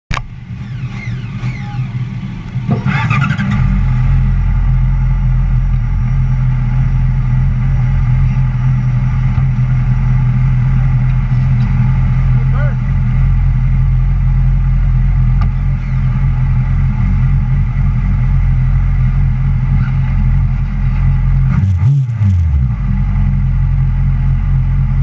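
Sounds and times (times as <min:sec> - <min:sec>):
motorcycle engine idling: 0:00.2 - 0:21.4.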